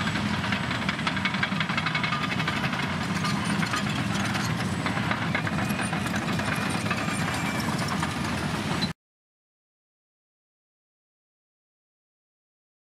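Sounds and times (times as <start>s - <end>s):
fast metallic clatter: 0.0s - 8.8s
diesel engines droning: 0.0s - 9.0s.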